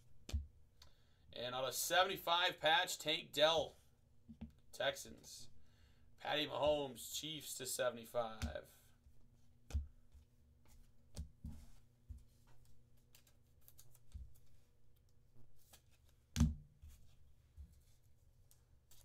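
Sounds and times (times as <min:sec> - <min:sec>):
faint electrical hum: 0:00.0 - 0:19.0
cards handled on a desk: 0:09.4 - 0:19.0.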